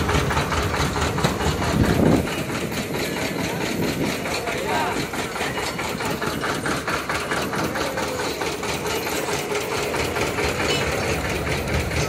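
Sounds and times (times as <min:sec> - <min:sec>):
busy street noise: 0:00.0 - 0:12.0
engine knocking: 0:00.0 - 0:12.0.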